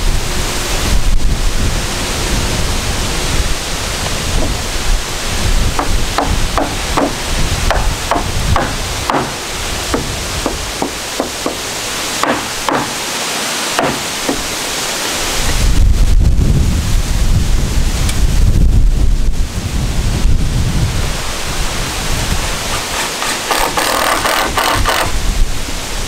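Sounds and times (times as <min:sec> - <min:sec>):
wind buffeting microphone: 0:00.0 - 0:12.8, 0:13.8 - 0:26.0
hammer striking nails into wood: 0:05.8 - 0:11.6, 0:12.2 - 0:13.1, 0:13.7 - 0:14.5, 0:22.7 - 0:25.1.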